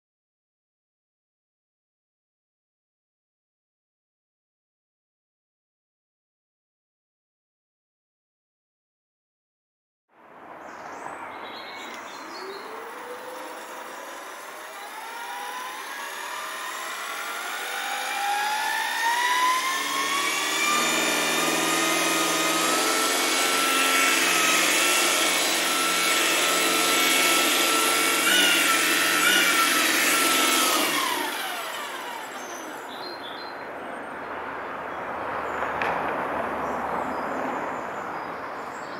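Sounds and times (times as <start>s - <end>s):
model helicopter motor whine: 12.4s - 32.9s.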